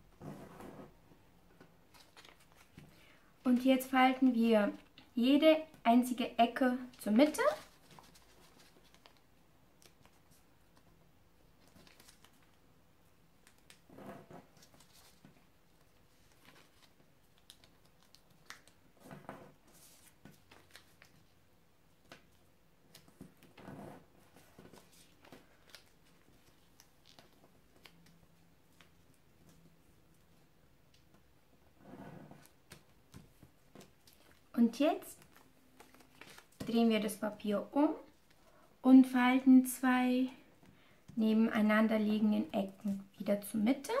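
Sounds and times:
paper rustling and crinkling: 1.8 - 3.9, 7.0 - 11.0, 11.6 - 12.6, 13.4 - 23.6, 24.2 - 30.5, 35.1 - 36.8.

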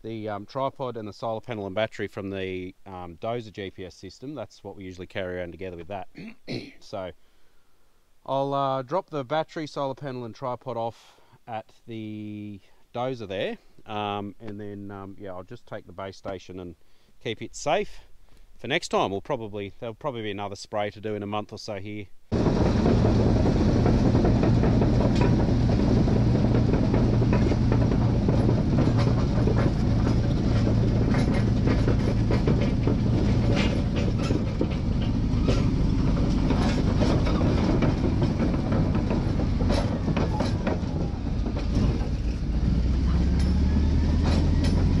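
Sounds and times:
bulldozer diesel drone: 22.3 - 45.0
steel tracks clanking: 22.3 - 45.0.

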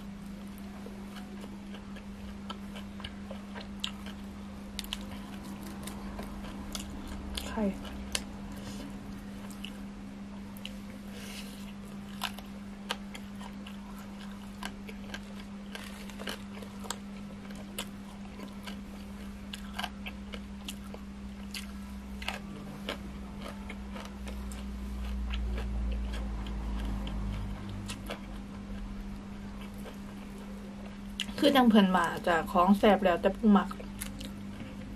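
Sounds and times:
steady low hum: 0.0 - 34.9
chewing and crunching: 0.2 - 34.9.

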